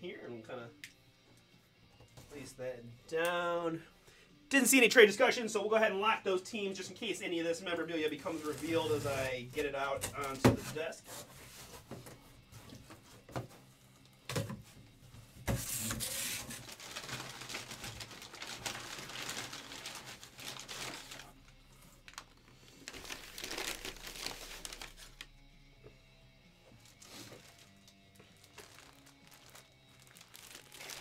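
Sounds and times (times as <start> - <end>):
packing paper crinkling: 15.6 - 25.3, 27.0 - 31.0.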